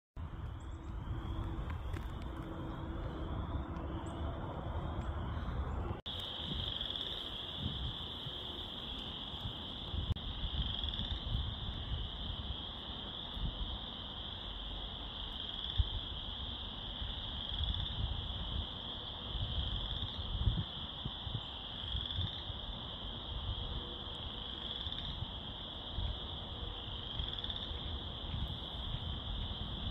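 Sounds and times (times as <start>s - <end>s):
low irregular rumble: 0.2s - 6.4s
tree frogs calling: 0.4s - 29.9s.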